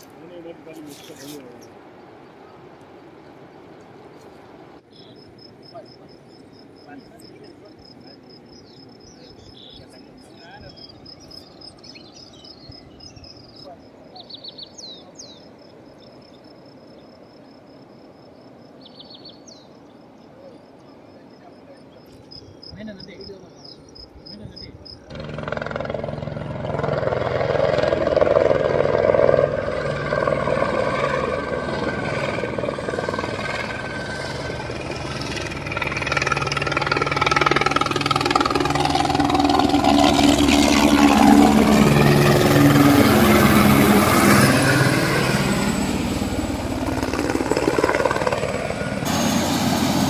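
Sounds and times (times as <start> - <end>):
helicopter turbine whine: 19.6 - 50.0
helicopter rotor chop: 25.0 - 50.0.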